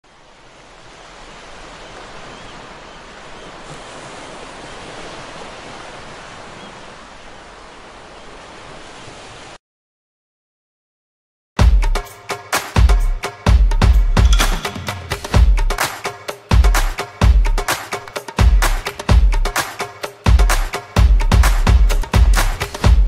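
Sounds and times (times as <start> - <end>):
small waves washing over sand: 0.0 - 9.6.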